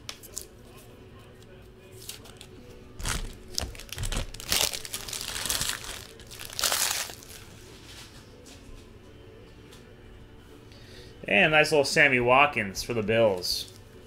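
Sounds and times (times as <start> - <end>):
wrapper crinkling and tearing: 2.0 - 7.6.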